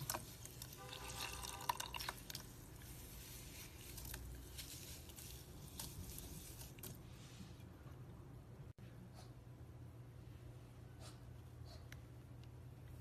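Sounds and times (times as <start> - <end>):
slime squishing: 0.0 - 7.3.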